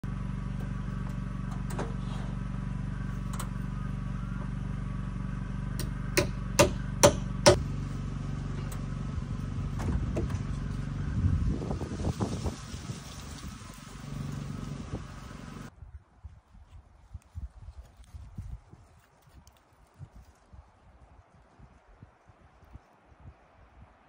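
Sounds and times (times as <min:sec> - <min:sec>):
engine hum: 0:00.0 - 0:15.7
hammer driving nails into wood: 0:05.8 - 0:07.6.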